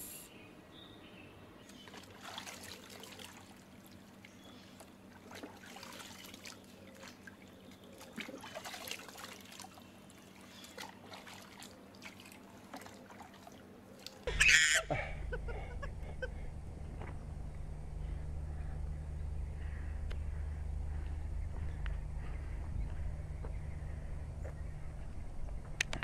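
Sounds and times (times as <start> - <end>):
water splashing in a plastic tub: 1.7 - 14.3.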